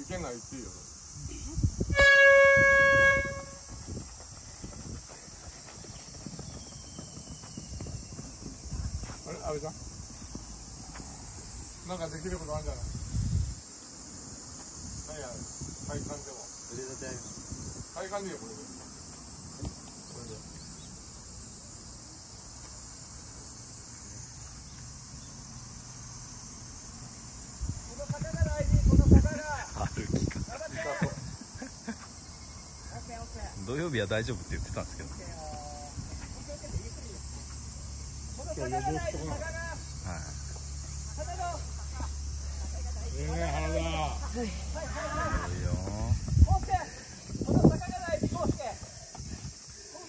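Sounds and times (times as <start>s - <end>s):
insects chirping: 0.0s - 50.0s
loud held tone: 1.9s - 3.7s
footsteps running on dirt: 3.3s - 11.6s, 45.7s - 49.7s.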